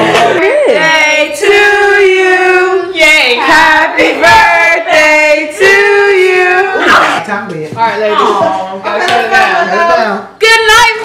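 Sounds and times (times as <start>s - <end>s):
women singing long held notes: 0.0s - 7.0s.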